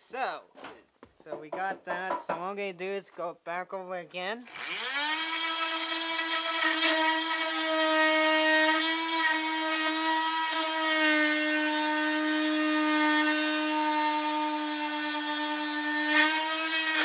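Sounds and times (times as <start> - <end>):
rotary tool cutting wood: 4.4 - 17.0.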